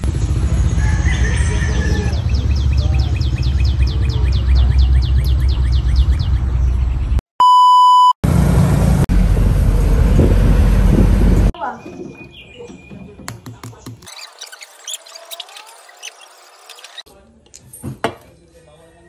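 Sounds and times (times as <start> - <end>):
loud pure beep: 7.4 - 8.2.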